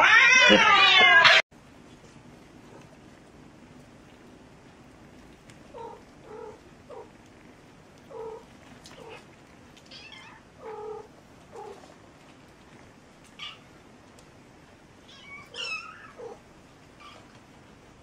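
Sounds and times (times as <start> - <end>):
cats meowing: 0.0 - 1.4, 5.6 - 12.0, 13.2 - 13.8, 15.0 - 17.4.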